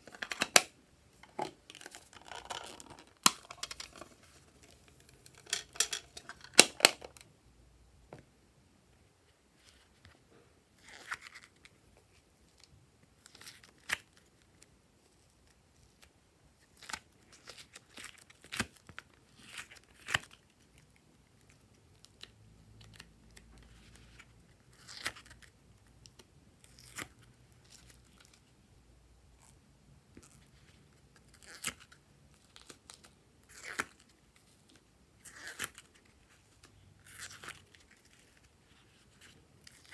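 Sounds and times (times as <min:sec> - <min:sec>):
crinkly handling sounds: 0:00.0 - 0:07.3, 0:30.1 - 0:39.9.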